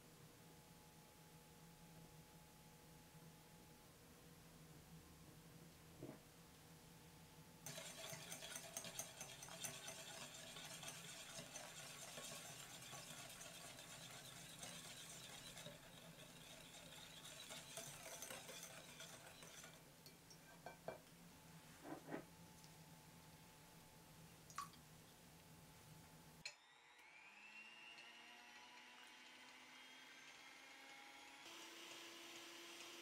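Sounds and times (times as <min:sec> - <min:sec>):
whisk clicking against glass bowl: 0:07.6 - 0:20.2.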